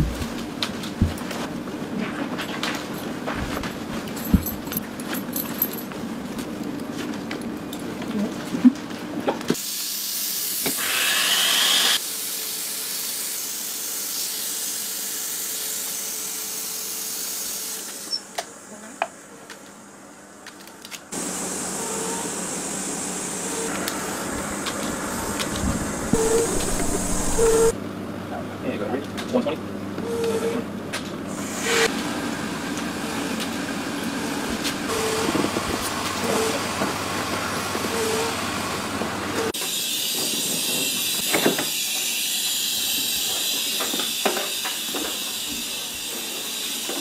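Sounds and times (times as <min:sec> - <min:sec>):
air hissing through hose: 0:25.7 - 0:27.7.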